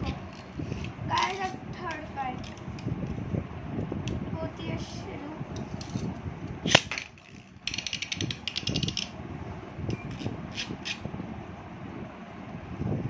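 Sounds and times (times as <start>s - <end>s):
spinning top rattling on plastic rim: 0.0s - 2.7s, 6.7s - 9.1s
spinning top whirring: 6.7s - 9.1s.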